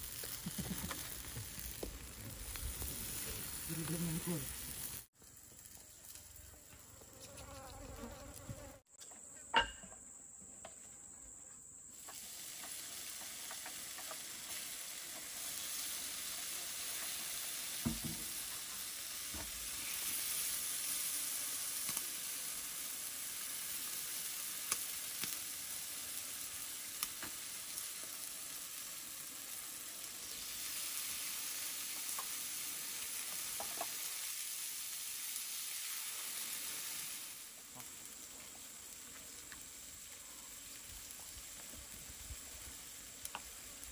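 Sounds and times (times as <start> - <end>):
pops and crackles: 0.0 - 3.0
chicken sizzling on grill: 0.0 - 8.6, 11.9 - 43.9.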